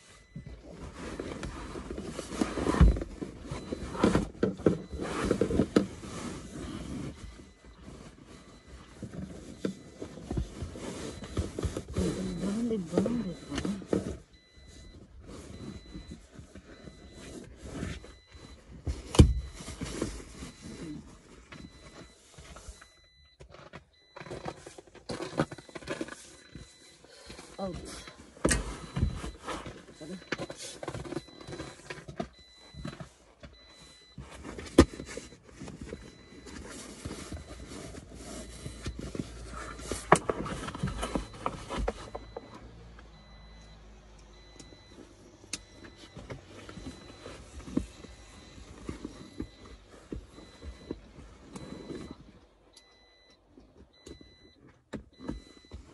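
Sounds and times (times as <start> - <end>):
seat cover rustling and scraping: 0.0 - 22.9, 28.2 - 42.2.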